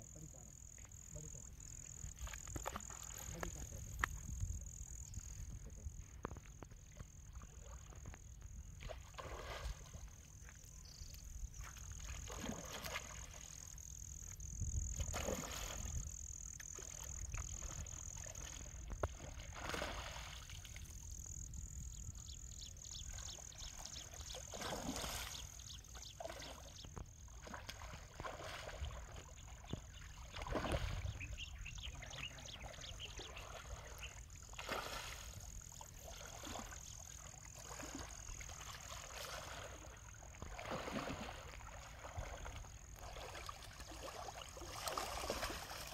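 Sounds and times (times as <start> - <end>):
wading through water: 0.0 - 45.9
fish splashing in water: 8.8 - 10.1, 11.7 - 13.7, 14.8 - 16.0, 16.6 - 20.9, 23.7 - 31.4, 32.6 - 45.9.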